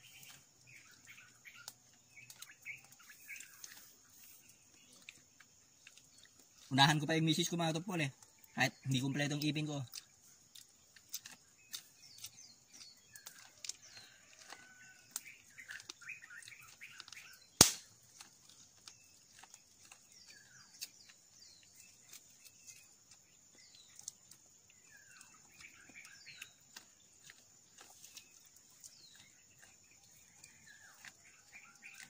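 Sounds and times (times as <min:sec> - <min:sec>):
clicks and crunches of eating corn: 0:00.0 - 0:32.0
small birds chirping: 0:00.0 - 0:32.0.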